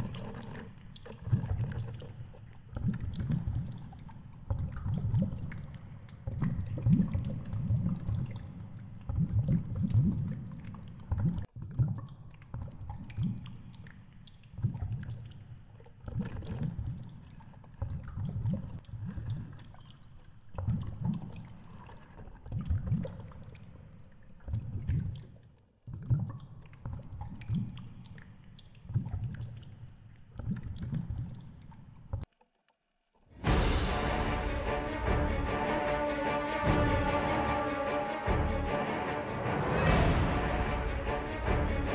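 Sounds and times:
muffled underwater water surges: 0:00.0 - 0:12.0.

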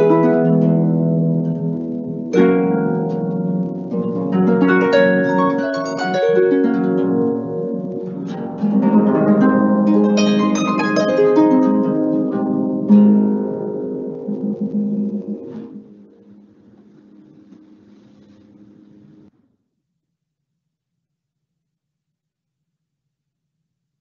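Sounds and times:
harp playing: 0:00.0 - 0:17.5.

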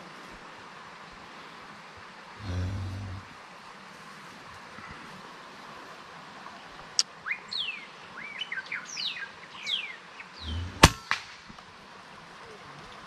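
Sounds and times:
small birds chirping: 0:06.5 - 0:10.9
air rifle firing crack: 0:10.8 - 0:11.5.

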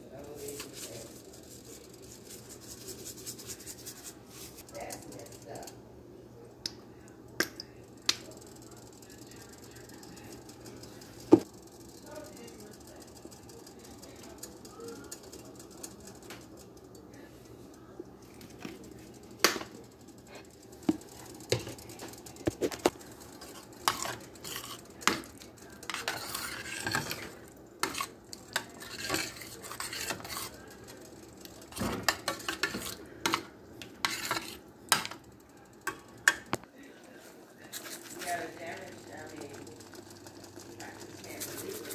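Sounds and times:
spoon scraping a metal pan: 0:23.4 - 0:30.6, 0:31.7 - 0:35.2.

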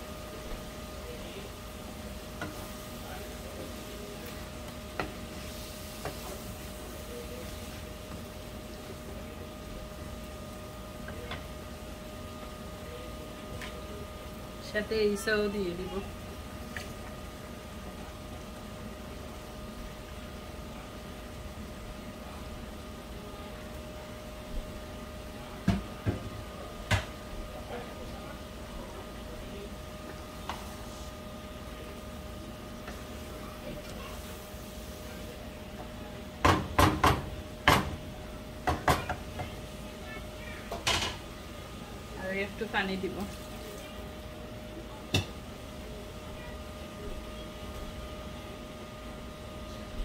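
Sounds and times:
wooden spatula stirring in pan: 0:00.0 - 0:14.6, 0:29.8 - 0:44.2
faint constant whine: 0:00.0 - 0:50.0
frying sizzle: 0:00.0 - 0:50.0
kitchen hum: 0:00.0 - 0:50.0
spatula knocking against pan: 0:38.6 - 0:39.6.

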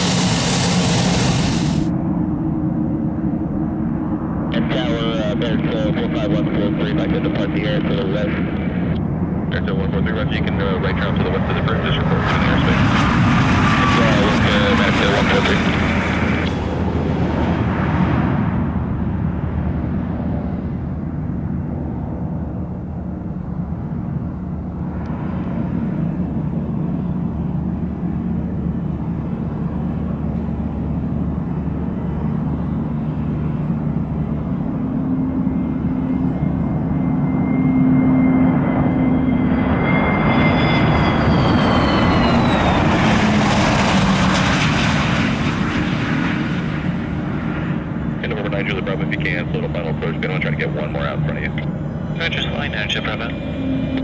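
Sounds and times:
jet engine rumble: 0:00.0 - 0:54.0
jet passing with whine: 0:00.0 - 0:54.0.

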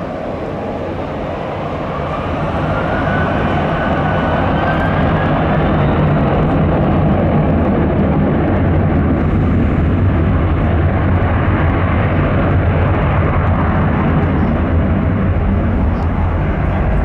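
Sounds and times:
jet engines rumbling: 0:00.0 - 0:17.0.

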